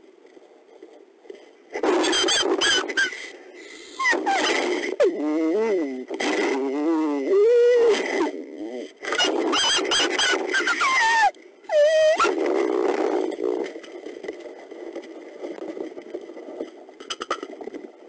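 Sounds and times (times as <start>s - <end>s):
wolf pups squealing and whining: 2.0s - 3.2s, 4.0s - 4.7s, 9.1s - 12.4s
wolf yelp: 4.0s - 4.6s, 9.2s - 12.4s.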